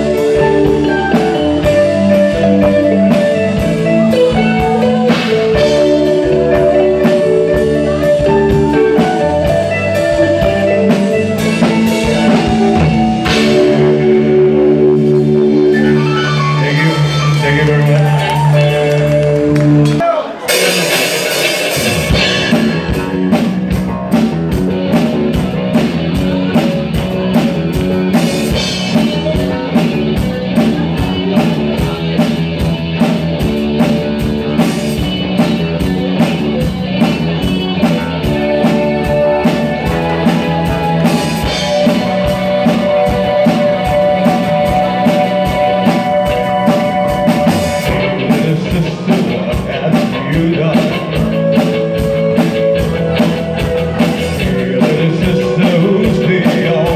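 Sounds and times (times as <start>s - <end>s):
bass: 0.0s - 56.9s
drum kit beat: 0.0s - 56.9s
electric guitar: 0.0s - 56.9s
keyboards: 0.0s - 56.9s
lead vocal singing: 37.9s - 56.9s.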